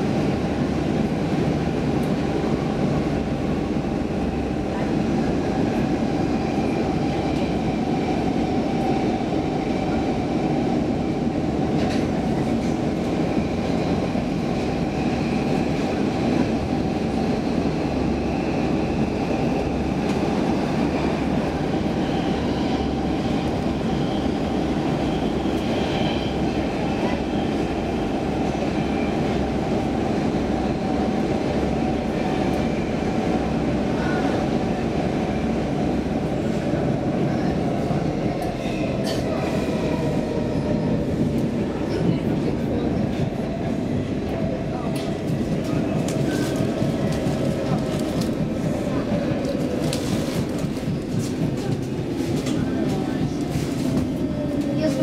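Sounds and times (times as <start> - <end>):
train wheels rumbling on rails: 0.0 - 55.0.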